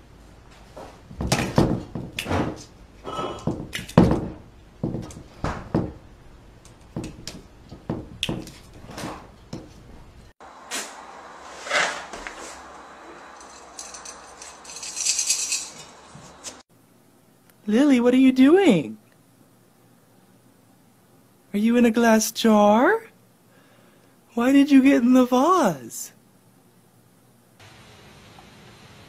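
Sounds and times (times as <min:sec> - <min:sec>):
cat hissing: 0:03.0 - 0:03.5.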